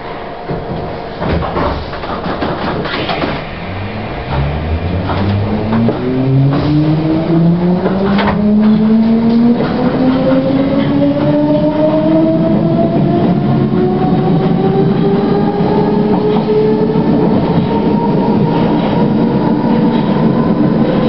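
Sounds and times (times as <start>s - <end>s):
wheels clunking over rail joints: 0.5s - 11.4s
train traction motors whining: 2.0s - 19.2s.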